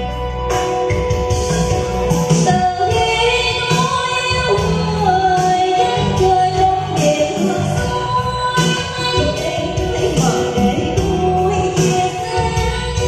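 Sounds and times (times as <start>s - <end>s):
keyboard: 0.0s - 13.0s
woman singing through microphone: 2.4s - 13.0s.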